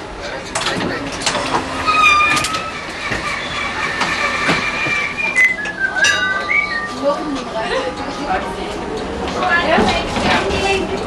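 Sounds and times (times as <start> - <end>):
tram running noise: 0.0 - 11.0
tram wheels squealing: 1.2 - 8.5.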